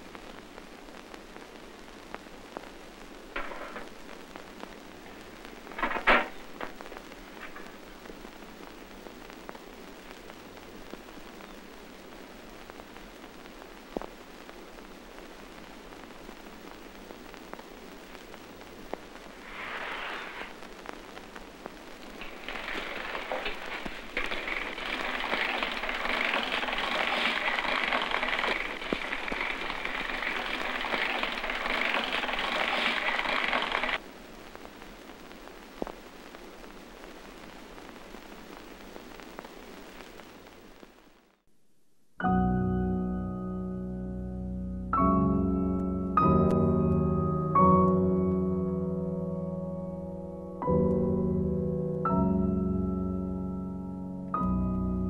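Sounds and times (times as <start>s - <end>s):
crackling hiss: 0.0s - 41.8s.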